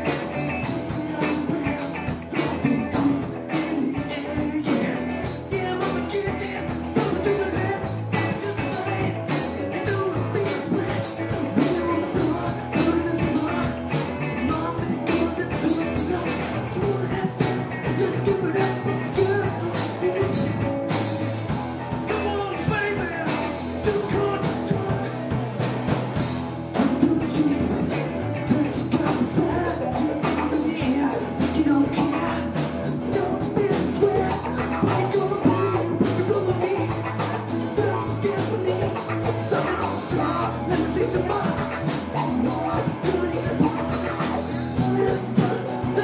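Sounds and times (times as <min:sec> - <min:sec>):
live rock band playing: 0:00.0 - 0:46.0.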